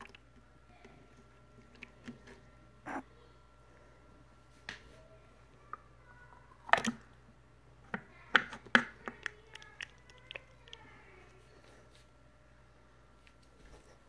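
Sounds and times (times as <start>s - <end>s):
plastic cup knocks and clicks: 7.9s - 10.4s.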